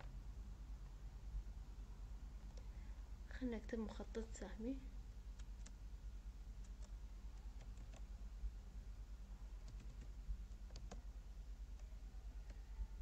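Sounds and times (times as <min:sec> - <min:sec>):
low steady hum: 0:00.0 - 0:13.0
computer keyboard clicks: 0:07.6 - 0:08.1, 0:09.6 - 0:11.0.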